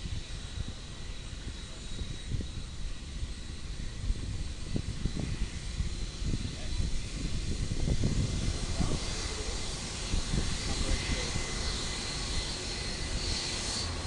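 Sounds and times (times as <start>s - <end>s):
jet engines whining: 0.0s - 14.0s
wind rumbling on microphone: 0.0s - 14.0s.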